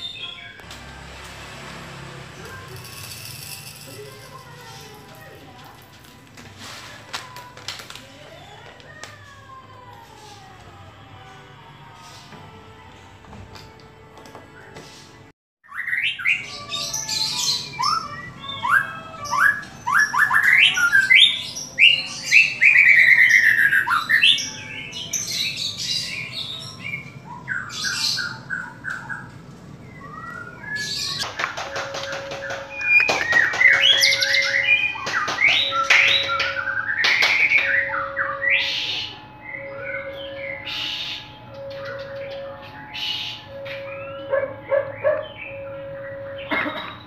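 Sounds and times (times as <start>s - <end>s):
songbird singing: 0.0s - 0.7s, 15.6s - 47.0s.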